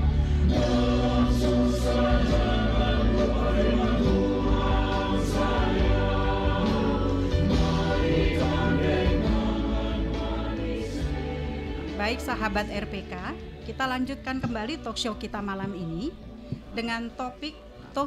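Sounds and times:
choir singing held chords: 0.0 - 13.7.

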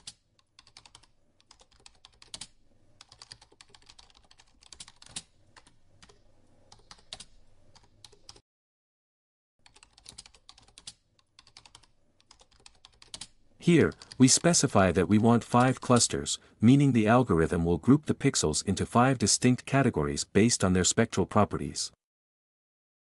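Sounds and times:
computer keyboard typing: 0.0 - 8.4, 9.6 - 14.6.

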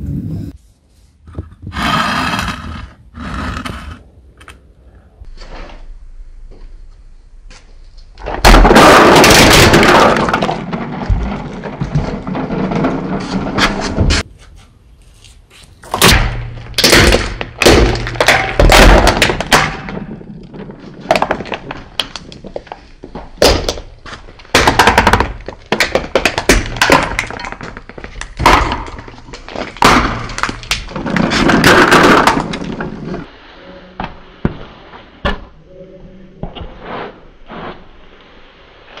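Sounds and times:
plastic crushed under car tyre: 8.2 - 13.8, 23.4 - 33.3.

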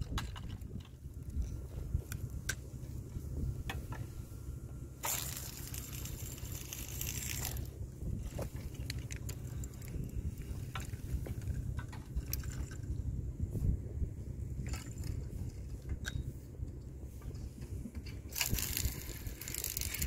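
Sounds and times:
wind rumbling on microphone: 0.0 - 20.0
hissing rustle: 18.3 - 20.0.

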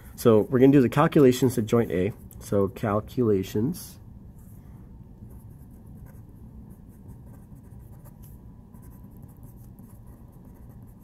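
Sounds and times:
pen writing on paper: 7.1 - 11.0.

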